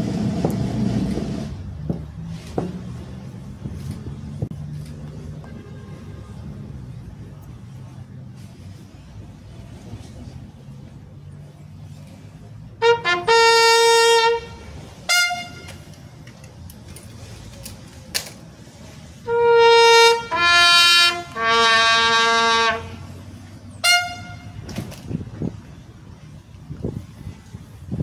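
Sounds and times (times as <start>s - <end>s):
bugle call: 12.8s - 15.9s, 19.2s - 23.0s, 23.8s - 24.6s.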